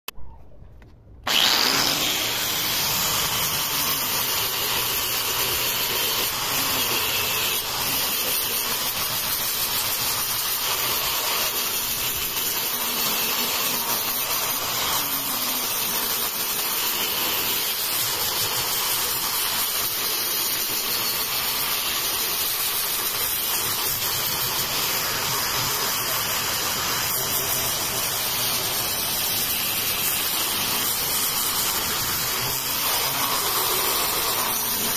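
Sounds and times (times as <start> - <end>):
angle grinder sanding wood: 1.3 - 34.9.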